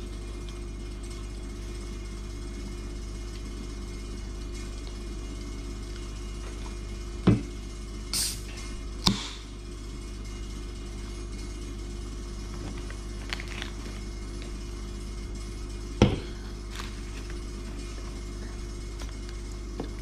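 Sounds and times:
steady low hum: 0.0s - 20.0s
soda can opening: 8.2s - 8.4s.

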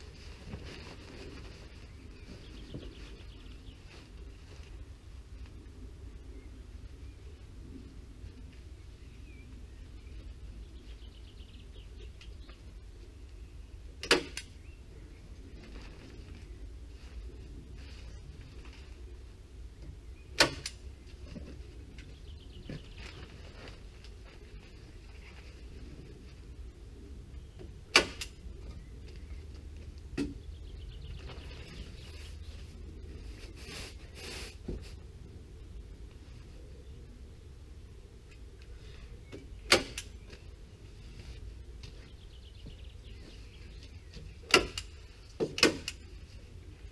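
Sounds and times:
membrane sheet rustling: 0.0s - 5.4s, 22.8s - 26.5s, 31.2s - 35.0s
staple gun shots: 27.9s - 28.4s, 39.7s - 40.1s.

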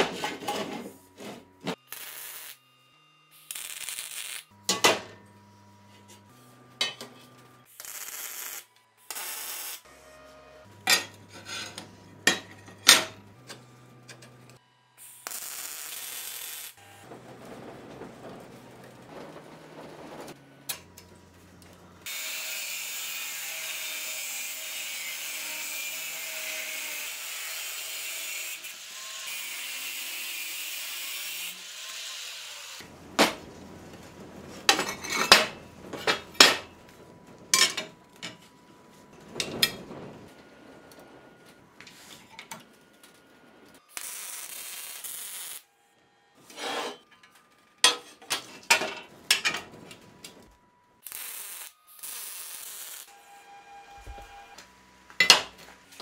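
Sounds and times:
steel plates clanking on table: 10.8s - 13.2s, 34.7s - 36.7s, 37.5s - 38.4s, 47.8s - 49.8s, 55.2s - 55.6s.

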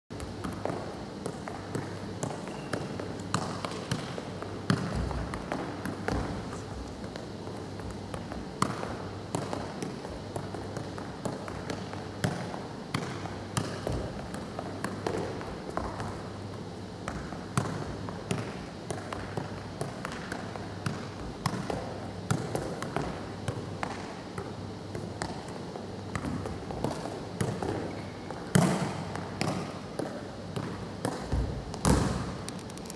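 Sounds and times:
football being juggled: 30.6s - 32.9s.

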